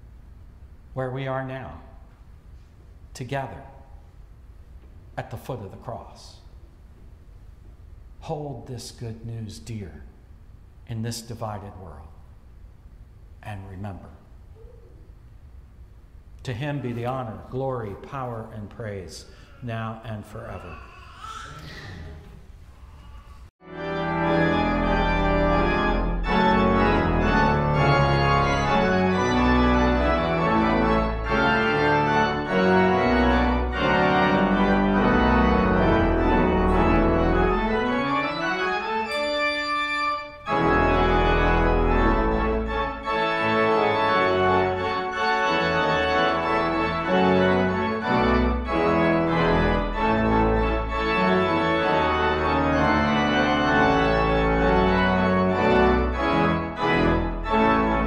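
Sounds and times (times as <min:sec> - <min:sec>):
organ playing sustained chords: 0:23.6 - 0:58.0.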